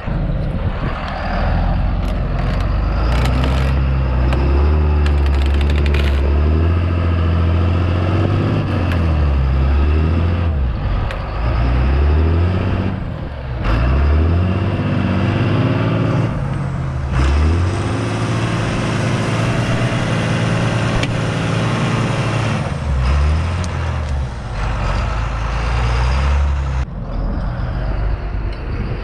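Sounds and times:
tractor diesel engine working hard: 0:00.0 - 0:29.0
tree roots tearing from ground: 0:05.0 - 0:06.5.

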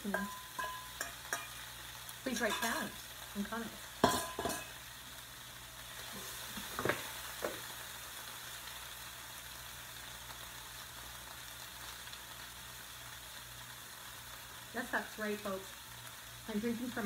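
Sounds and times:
vegetables sizzling in pan: 0:00.0 - 0:17.0.

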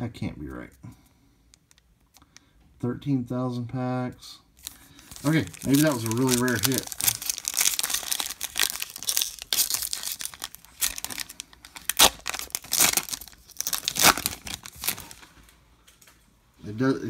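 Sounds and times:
sharp foil rips: 0:04.6 - 0:15.3
foil wrapper crinkling: 0:04.6 - 0:15.5.

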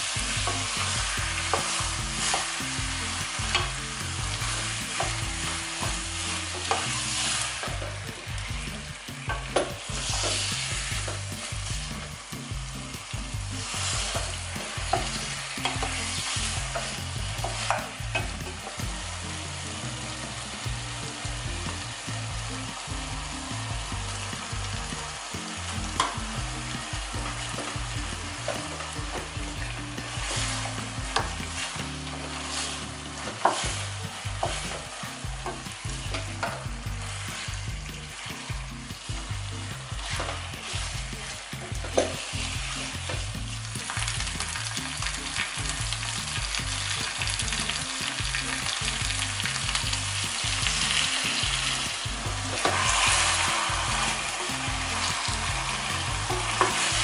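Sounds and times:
chicken sizzling in a pot: 0:00.0 - 0:57.0
wooden spatula scraping a pot: 0:27.3 - 0:38.3, 0:50.4 - 0:57.0.

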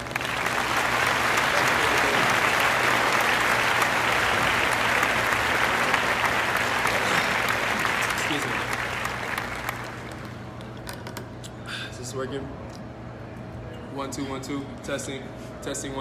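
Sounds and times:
crowd applauding: 0:00.0 - 0:10.6.

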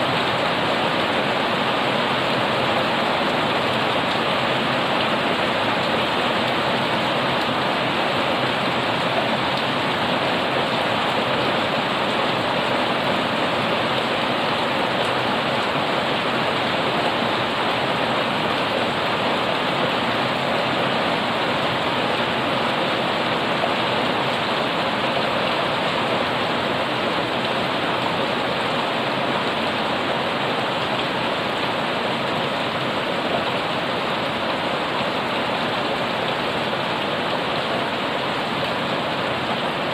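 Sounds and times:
heavy rain on pavement and plants: 0:00.0 - 0:39.9.

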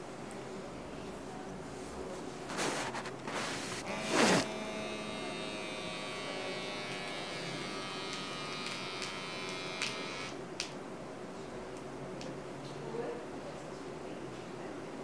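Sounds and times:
small pump motor buzzing: 0:03.7 - 0:10.4.

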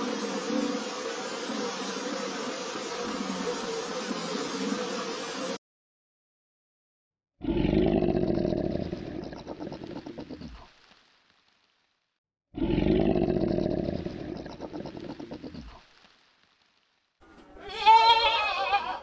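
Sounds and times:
crocodile growl: 0:07.4 - 0:10.7, 0:12.6 - 0:15.8.

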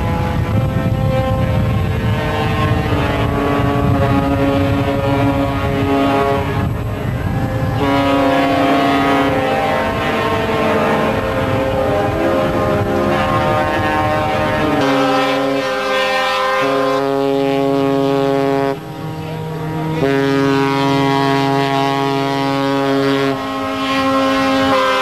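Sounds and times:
steady low rumble: 0:00.0 - 0:08.4, 0:16.6 - 0:24.8
ships' horns blasting: 0:00.0 - 0:25.0.

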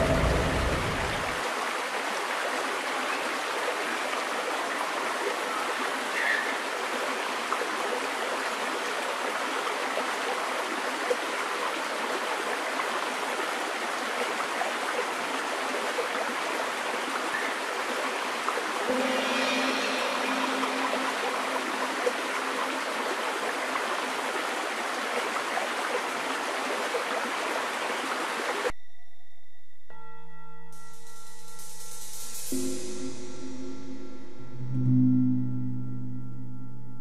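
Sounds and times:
stream running over rocks: 0:00.0 - 0:28.7.

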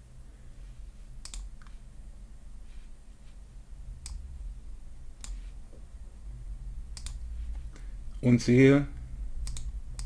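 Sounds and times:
computer mouse clicking: 0:01.2 - 0:01.8, 0:04.0 - 0:04.3, 0:05.2 - 0:05.4, 0:06.9 - 0:07.7, 0:09.4 - 0:10.0.

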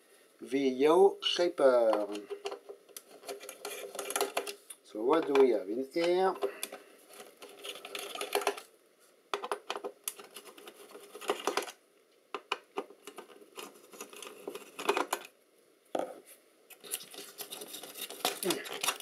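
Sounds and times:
small metallic clicks and scrapes: 0:01.8 - 0:08.7, 0:09.4 - 0:11.8, 0:12.4 - 0:15.3, 0:16.7 - 0:19.0.

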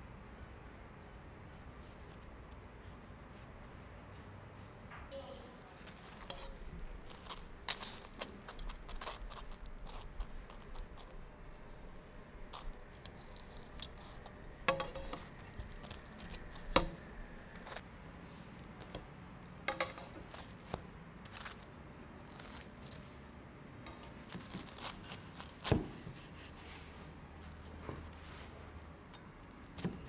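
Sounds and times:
metal tongs clicking on a pan: 0:12.6 - 0:17.0, 0:19.7 - 0:20.2.

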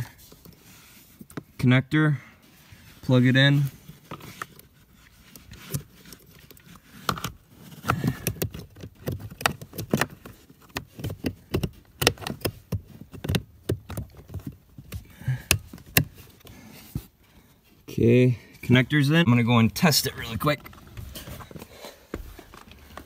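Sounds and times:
hands handling wiring connector: 0:03.6 - 0:17.2, 0:20.1 - 0:23.0.

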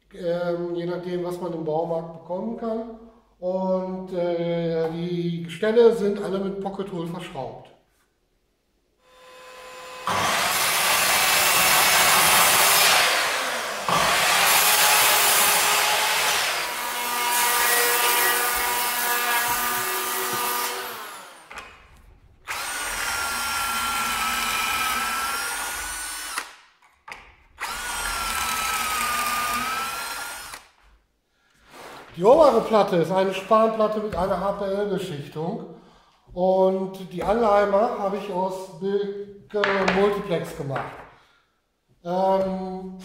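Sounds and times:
drill motor whine: 0:09.0 - 0:21.6, 0:22.5 - 0:26.5, 0:27.6 - 0:30.6
electric planer cutting wood: 0:09.1 - 0:21.6, 0:22.5 - 0:26.5, 0:27.6 - 0:30.6.

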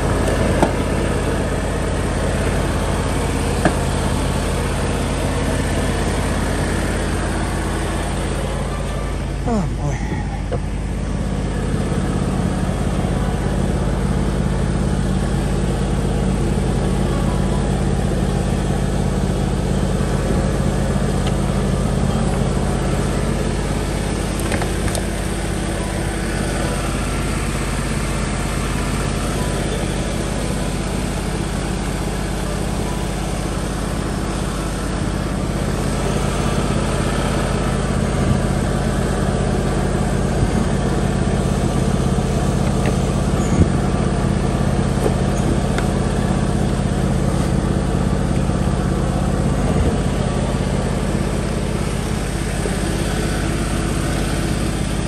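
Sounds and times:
lawn tractor engine idling: 0:00.0 - 0:55.0.

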